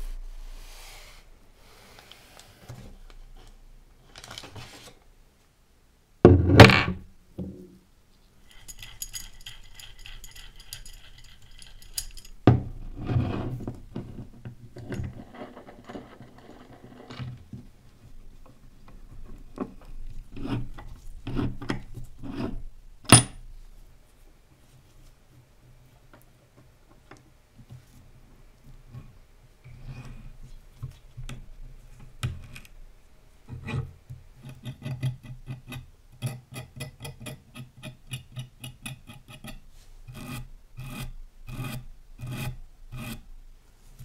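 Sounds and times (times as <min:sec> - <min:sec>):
metal parts knocking and scraping: 0:08.4 - 0:17.4.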